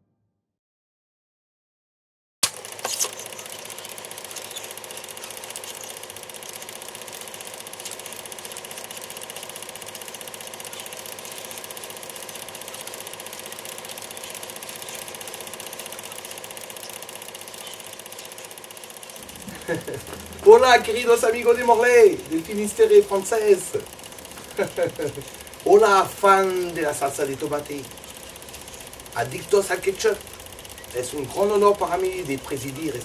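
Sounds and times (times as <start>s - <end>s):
film projector running: 2.4s - 33.0s.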